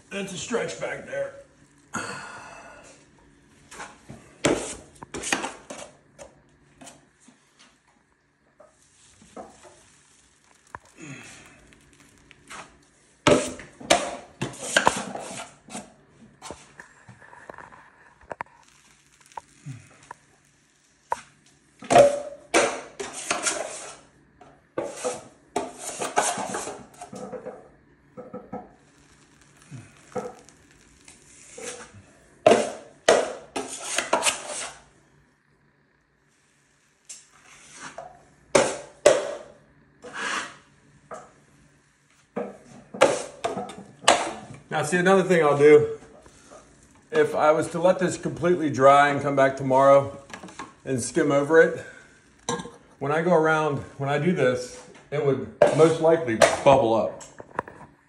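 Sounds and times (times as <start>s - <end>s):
drywall knife scraping: 12.5s - 15.9s, 23.0s - 24.1s, 24.8s - 27.1s, 33.5s - 34.8s, 40.0s - 40.6s.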